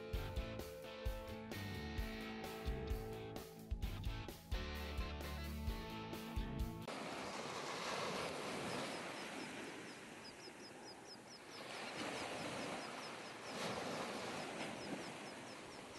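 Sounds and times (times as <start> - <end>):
waves washing over sand: 6.9 - 15.9
bird chirping rapidly: 9.1 - 11.8.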